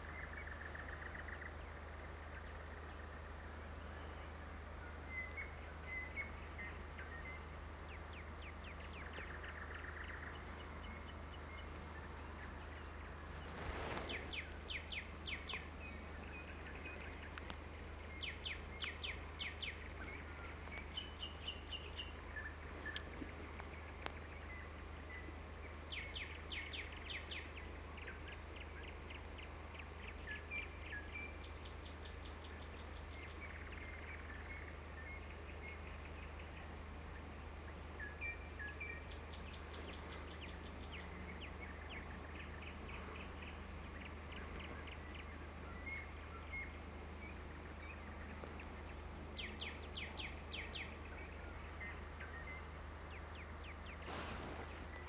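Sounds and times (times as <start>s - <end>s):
birds singing trills and chirps: 0.0s - 55.0s
steady low hum: 0.0s - 55.0s.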